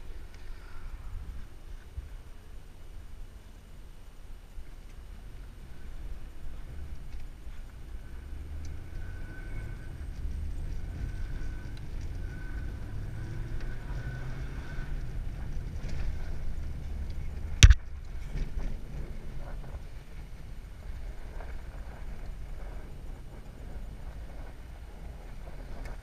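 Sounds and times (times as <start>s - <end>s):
faint high whine: 0.0s - 26.0s
sharp knock: 17.6s - 17.8s.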